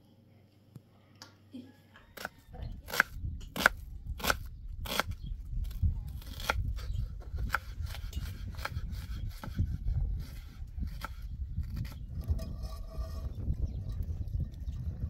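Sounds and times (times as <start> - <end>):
knife chopping onion on wooden board: 6.2 - 12.0.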